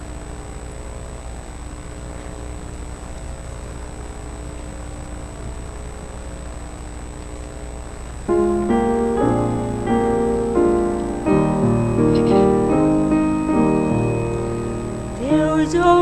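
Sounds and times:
low room hum: 0:00.0 - 0:16.0
piano playing slow chords: 0:08.3 - 0:16.0.

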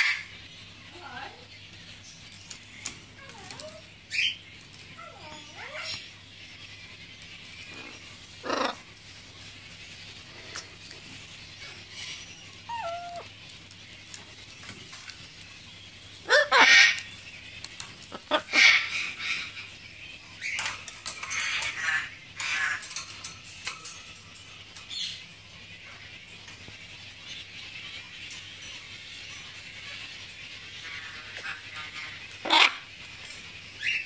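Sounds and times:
macaw calling: 0:07.7 - 0:08.9, 0:16.2 - 0:17.2, 0:18.0 - 0:19.7
harsh squawks: 0:16.2 - 0:17.1.

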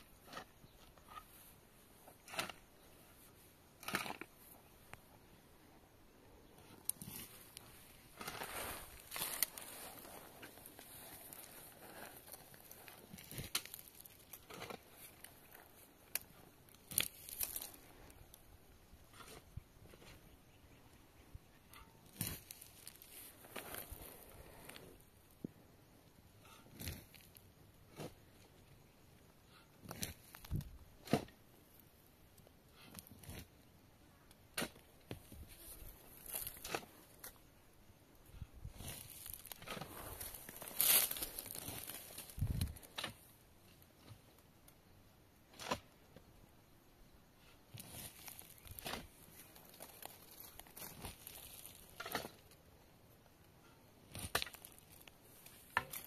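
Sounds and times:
shovel scraping stony soil: 0:00.0 - 0:04.7, 0:06.6 - 0:18.0, 0:19.0 - 0:20.3, 0:21.6 - 0:25.0, 0:29.6 - 0:31.5, 0:34.5 - 0:37.5, 0:38.4 - 0:44.3, 0:45.5 - 0:46.0, 0:47.5 - 0:52.6, 0:53.6 - 0:56.0
dirt and stones tossed: 0:06.5 - 0:18.4, 0:21.7 - 0:25.4, 0:29.8 - 0:31.8, 0:34.4 - 0:37.5, 0:38.6 - 0:44.8, 0:47.7 - 0:52.6, 0:54.0 - 0:56.0.

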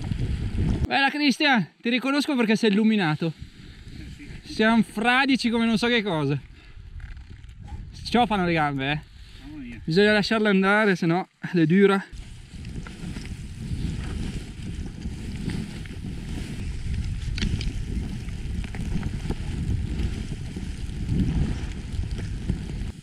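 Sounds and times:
wind buffeting microphone: 0:00.0 - 0:00.9, 0:03.4 - 0:10.4, 0:12.1 - 0:23.0
skis running through snow: 0:12.1 - 0:23.0.

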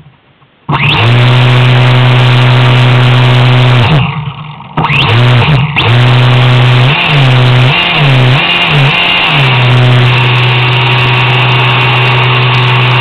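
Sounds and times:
electric motor buzzing: 0:00.7 - 0:13.0.

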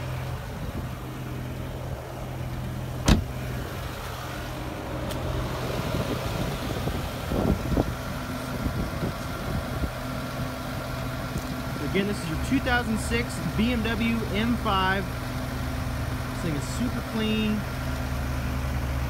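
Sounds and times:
car engine idling: 0:00.0 - 0:19.0
car door shutting: 0:03.0 - 0:03.6.

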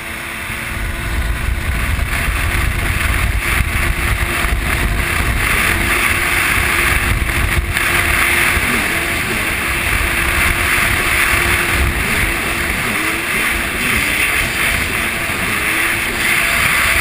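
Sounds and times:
jet ski engine running: 0:00.0 - 0:17.0
wind and water rushing: 0:00.0 - 0:17.0.

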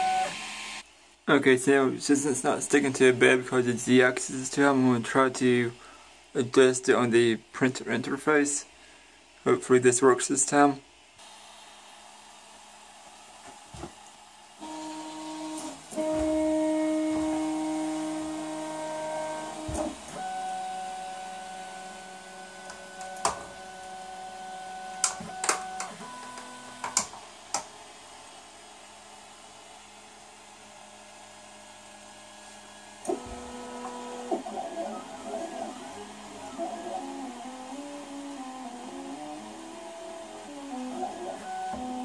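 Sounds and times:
stepper motors whining: 0:14.6 - 0:27.1, 0:32.4 - 0:42.0.

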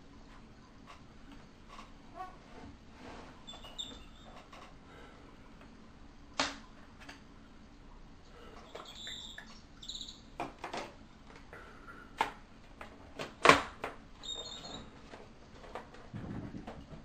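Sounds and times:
short high squeaks: 0:03.4 - 0:04.5, 0:08.7 - 0:10.3, 0:14.2 - 0:14.9.

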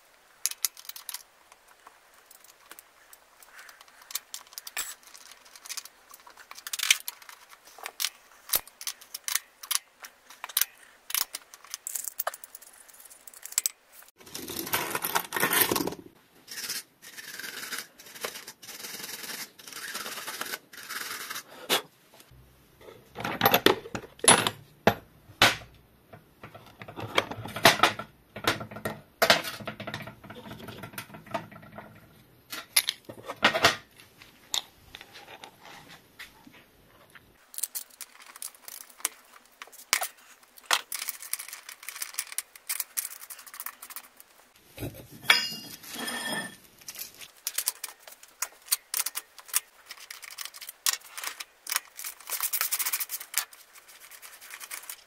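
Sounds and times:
rummaging and scraping: 0:00.5 - 0:16.1, 0:26.4 - 0:55.0
metal tools clicking and clinking: 0:03.6 - 0:13.8, 0:45.2 - 0:47.9.

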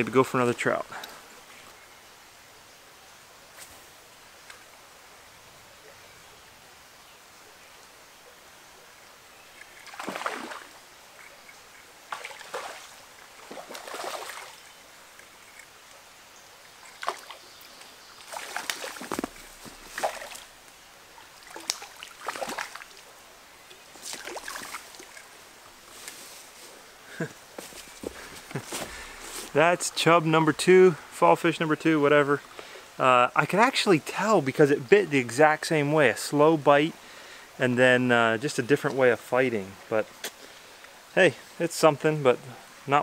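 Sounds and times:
stream flowing: 0:00.0 - 0:43.0
wading steps through water: 0:09.6 - 0:14.8, 0:16.8 - 0:20.5, 0:21.4 - 0:23.1, 0:23.7 - 0:25.3, 0:27.6 - 0:29.6
fish thrashing in water: 0:09.7 - 0:10.8, 0:12.1 - 0:14.7, 0:18.3 - 0:20.5, 0:21.4 - 0:23.0.

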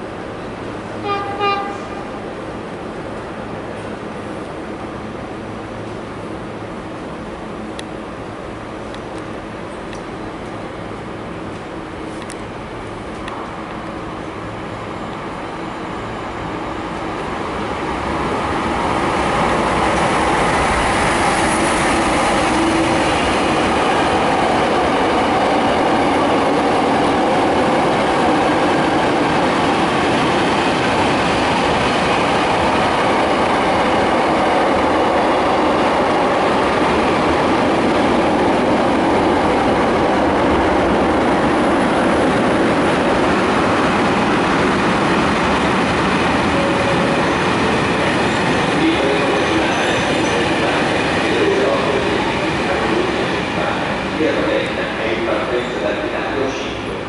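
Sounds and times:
train wheels rolling on rails: 0:05.7 - 0:57.0.

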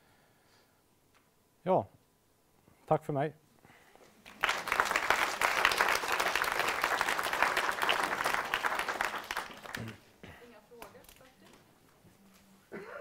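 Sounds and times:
audience applauding: 0:04.1 - 0:10.1.

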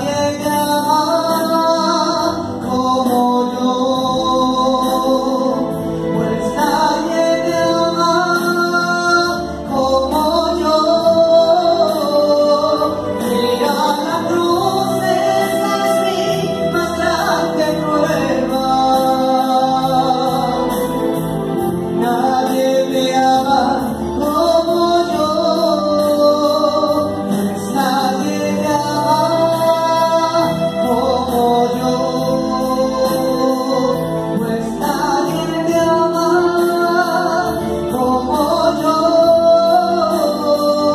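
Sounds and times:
woman singing into microphone: 0:00.0 - 0:21.1
electronic keyboard chords: 0:00.0 - 0:40.9.

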